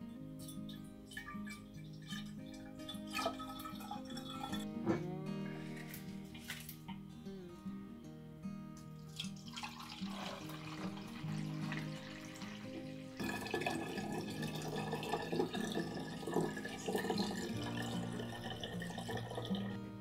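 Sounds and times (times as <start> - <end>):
background music: 0.0 - 20.0
liquid pouring into glass bottle: 0.5 - 4.7, 9.0 - 19.8.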